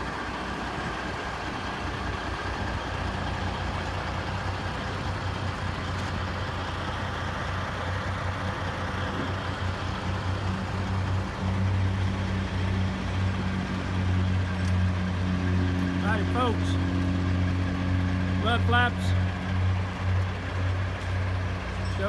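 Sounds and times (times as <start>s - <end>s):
diesel truck engine idling: 0.0s - 22.0s.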